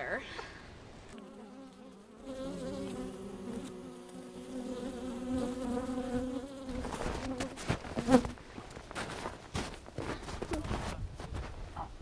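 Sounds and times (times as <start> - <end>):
honeybees buzzing: 1.1 - 8.4.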